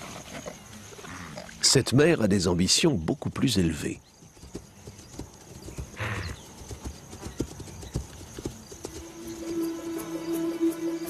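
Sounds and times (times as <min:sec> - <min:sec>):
hooves thudding on grass: 0:04.0 - 0:10.8
animal breathing: 0:05.8 - 0:06.6
music: 0:09.0 - 0:11.0.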